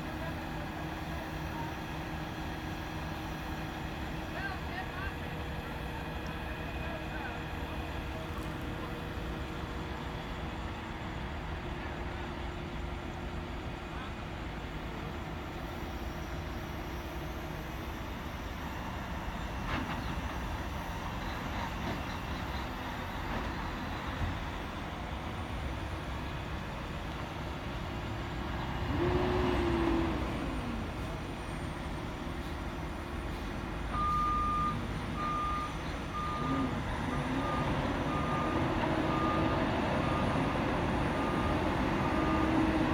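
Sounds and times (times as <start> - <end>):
heavy diesel engines running: 0.0 - 42.9
truck reversing alarm beeps: 16.0 - 42.9.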